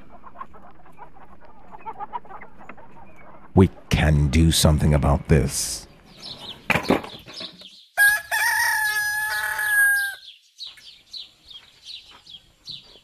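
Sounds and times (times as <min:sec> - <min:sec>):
small birds chirping: 0:00.0 - 0:13.0
rooster crowing: 0:08.0 - 0:10.3.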